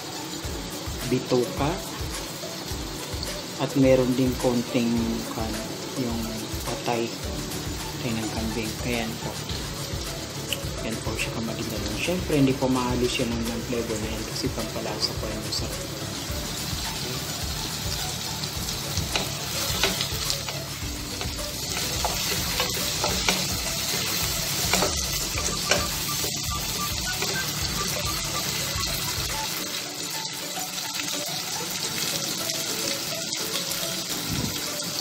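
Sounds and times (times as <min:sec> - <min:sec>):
vegetables sizzling in hot oil: 0:00.0 - 0:35.0
spatula scraping and tapping pot: 0:19.0 - 0:27.9.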